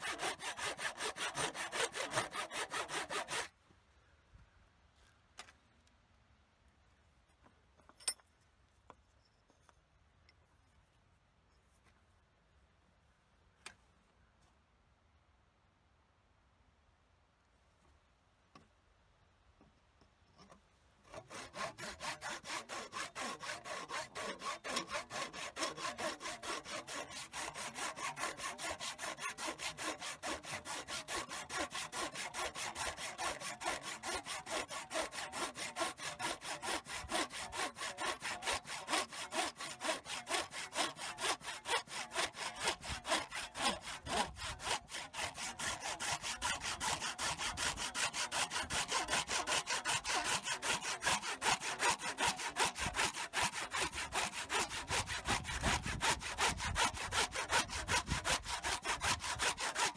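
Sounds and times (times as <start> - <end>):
hand saw strokes: 0.0 - 3.6, 20.4 - 59.9.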